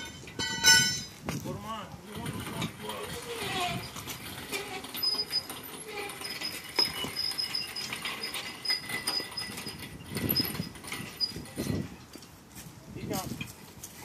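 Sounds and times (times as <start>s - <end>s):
sharp metal clank: 0.0s - 1.2s
casters rolling on concrete: 0.0s - 14.0s.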